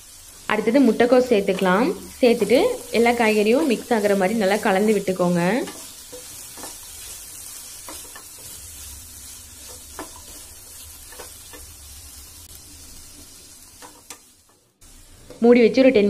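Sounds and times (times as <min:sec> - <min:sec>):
vegetables sizzling in oil: 0:00.0 - 0:16.0
spatula tapping and scraping pan: 0:05.6 - 0:08.6, 0:09.6 - 0:11.8.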